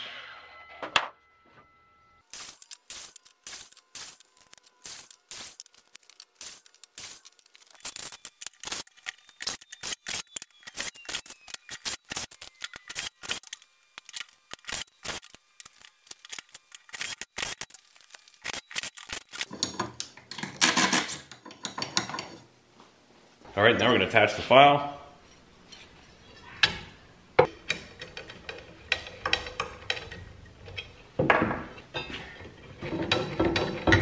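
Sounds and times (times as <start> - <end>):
wood blocks clicking and knocking: 2.6 - 22.3.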